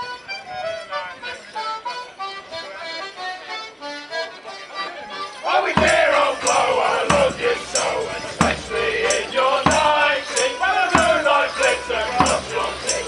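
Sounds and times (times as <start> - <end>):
accordions playing lively tune: 0.0 - 13.0
bass drum beating: 5.7 - 13.0.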